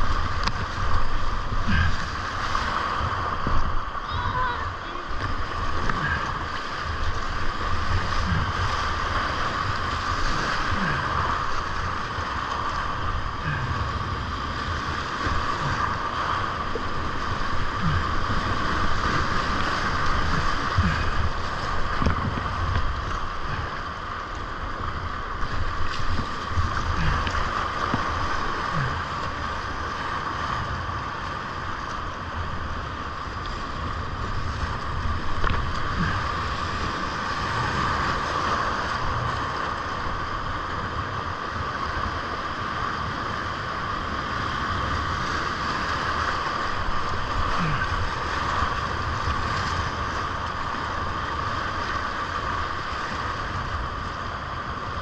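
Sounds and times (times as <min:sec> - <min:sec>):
water thumping on hull: 0:00.0 - 0:03.9, 0:17.6 - 0:23.5, 0:25.4 - 0:28.4, 0:34.6 - 0:36.8
rapids rushing: 0:00.0 - 0:55.0.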